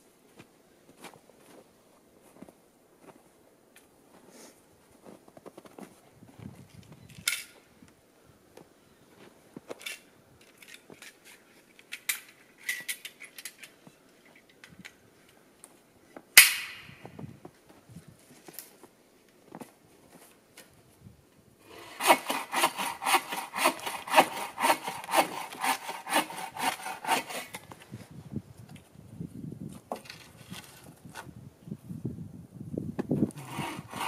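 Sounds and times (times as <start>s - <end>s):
wood and tools being handled: 8.5s - 16.3s, 21.7s - 28.9s, 29.7s - 31.4s, 33.2s - 34.0s
bow saw cutting a log: 21.7s - 27.6s, 33.3s - 34.0s.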